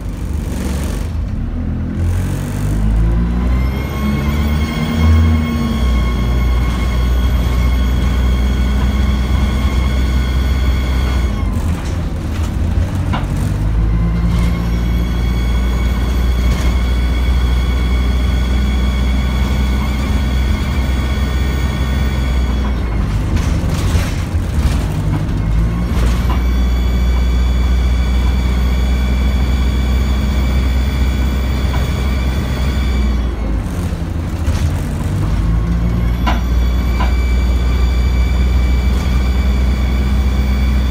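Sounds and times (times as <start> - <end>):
bus diesel engine droning: 0.0 - 40.9
high engine whine: 0.0 - 40.9
knocks and rattles: 11.0 - 15.2, 22.3 - 27.4, 33.6 - 37.2.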